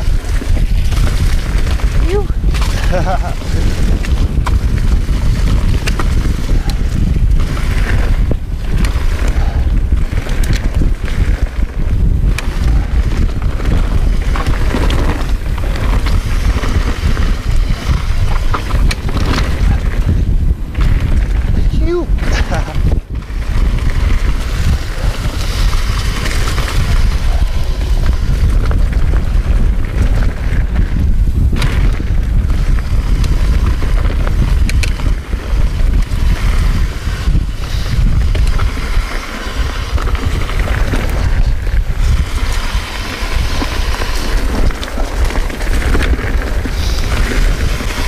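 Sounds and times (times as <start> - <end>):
bike clicks and rattles: 0.0 - 48.0
tyres rolling on dirt: 0.0 - 48.0
wind buffeting microphone: 0.0 - 48.0.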